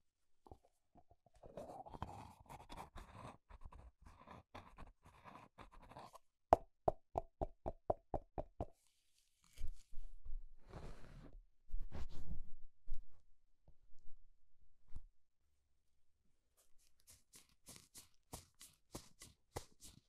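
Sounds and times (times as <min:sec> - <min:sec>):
rustling and scraping handling: 0:16.6 - 0:20.0.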